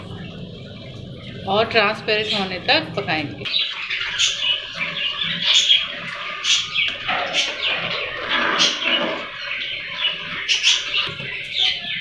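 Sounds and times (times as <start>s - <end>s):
metal spoon scraping a pan: 6.8s - 9.4s.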